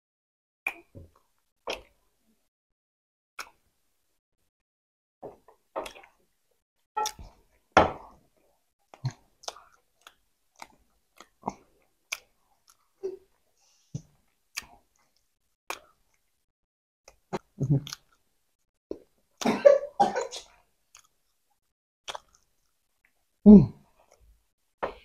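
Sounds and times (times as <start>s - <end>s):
people chewing: 8.9s - 16.3s, 17.1s - 18.2s, 22.0s - 23.3s.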